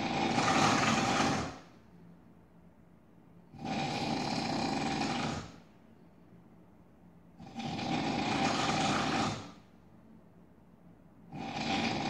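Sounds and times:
man snoring loudly: 0.0s - 1.6s, 3.5s - 5.5s, 7.4s - 9.6s, 11.3s - 12.0s.

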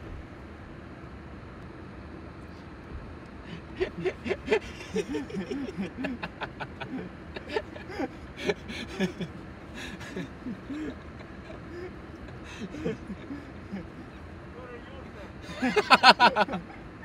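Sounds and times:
low rumble inside a car: 0.0s - 17.0s
muffled voices talking: 10.7s - 15.5s.

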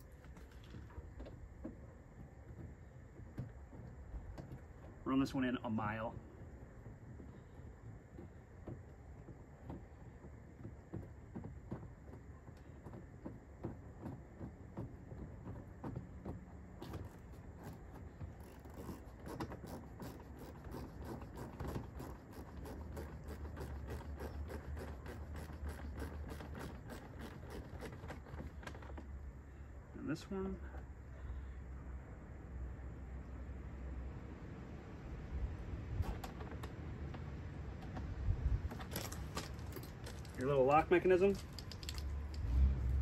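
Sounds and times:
hand ratchet clicking: 18.4s - 28.8s
faint handling noise: 36.0s - 42.5s.

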